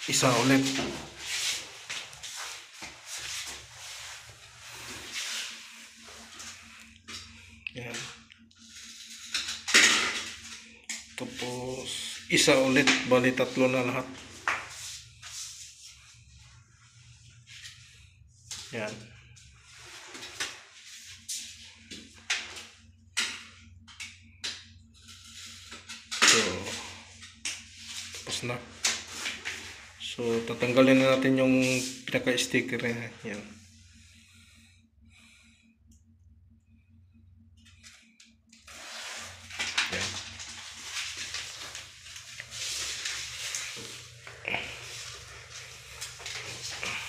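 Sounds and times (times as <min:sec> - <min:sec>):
backing paper peeling and crackling: 0:38.6 - 0:47.0.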